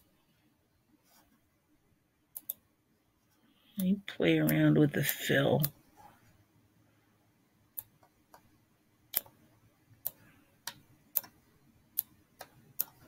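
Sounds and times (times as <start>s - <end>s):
computer mouse clicks: 2.3s - 2.6s, 7.7s - 8.5s, 9.1s - 9.4s, 10.0s - 11.4s, 12.0s - 13.0s.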